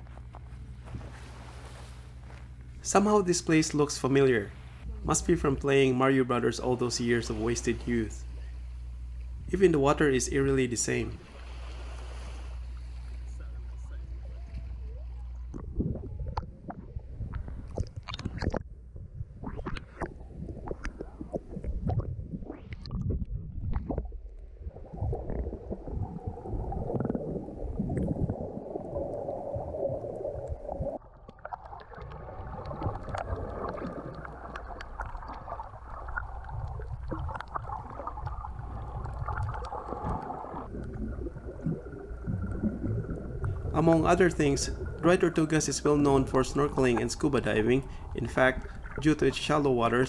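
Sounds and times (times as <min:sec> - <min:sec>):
muffled underwater rumble: 0:10.4 - 0:50.0
water splashing against camera: 0:11.1 - 0:50.0.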